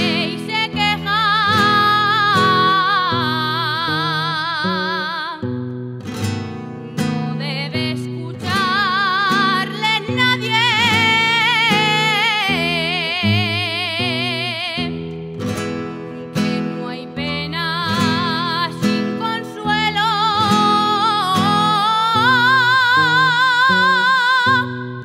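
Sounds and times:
person singing with vibrato: 0.0s - 5.6s, 6.5s - 15.2s, 16.2s - 25.0s
strummed and plucked guitars: 0.0s - 25.0s.

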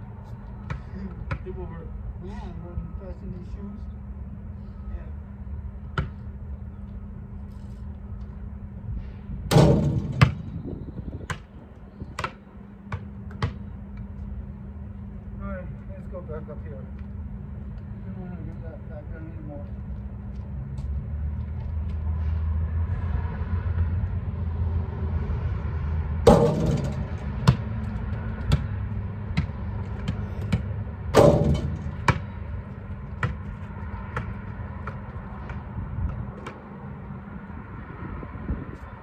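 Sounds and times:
steady low rumble: 0.0s - 39.0s
ball bouncing on asphalt: 0.2s - 1.8s, 5.8s - 6.3s, 9.5s - 14.2s, 20.3s - 22.1s, 26.2s - 36.8s
ball striking something hard: 9.5s - 10.6s, 26.3s - 27.7s, 29.4s - 32.3s.

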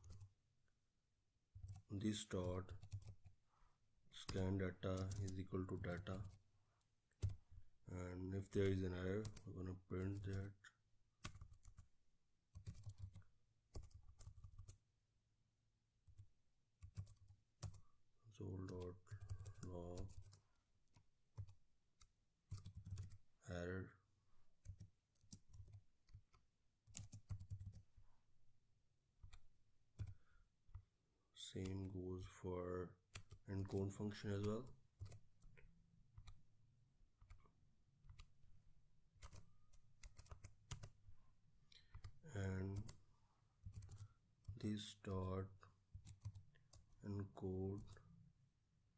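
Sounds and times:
computer keyboard typing: 2.7s - 3.3s, 5.0s - 6.4s, 10.1s - 10.4s, 11.2s - 11.9s, 12.6s - 14.8s, 16.8s - 17.8s, 18.7s - 23.2s, 24.6s - 27.9s, 33.1s - 35.5s, 39.2s - 41.0s, 43.6s - 44.6s, 45.9s - 47.0s
computer keyboard keystrokes: 5.0s - 5.3s, 12.6s - 14.8s, 24.7s - 27.8s, 39.2s - 39.4s, 40.0s - 40.9s.

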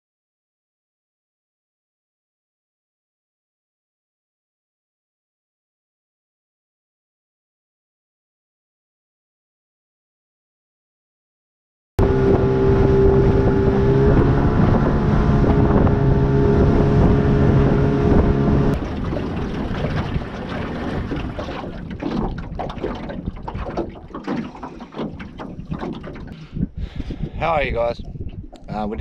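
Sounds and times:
outboard motor running: 12.0s - 27.4s
water around boat: 12.0s - 29.0s
wind buffeting microphone: 12.0s - 29.0s.

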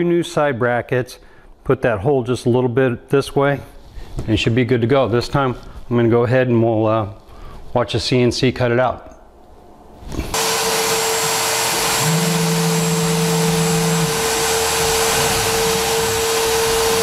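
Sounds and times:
router spindle cutting: 10.3s - 17.0s
shop vacuum running: 10.3s - 17.0s.

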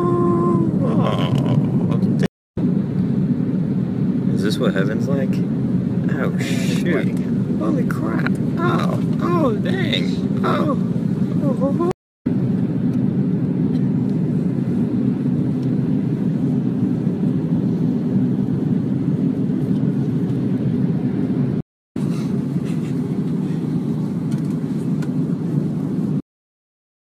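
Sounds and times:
airliner cabin noise: 0.0s - 26.2s.

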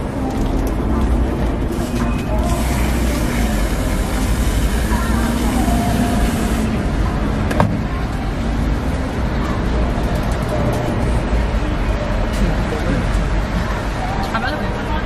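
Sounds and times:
street noise: 0.0s - 15.0s
aerosol cream can hissing: 1.8s - 6.7s.

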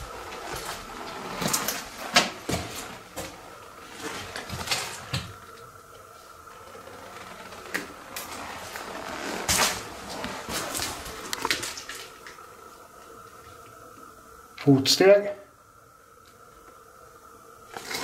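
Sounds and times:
footsteps and scuffs on a floor: 0.0s - 3.4s.

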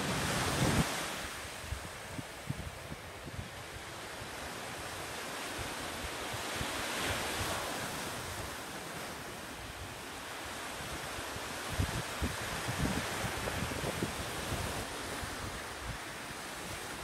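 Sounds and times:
small waves washing onto shore: 0.0s - 17.0s
wind buffeting microphone: 11.6s - 16.9s.

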